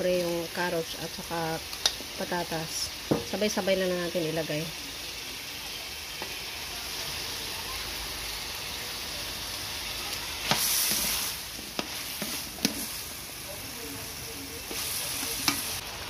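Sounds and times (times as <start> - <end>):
food sizzling in a metal pan: 0.0 - 16.0
spatula stirring in pan: 9.6 - 15.8.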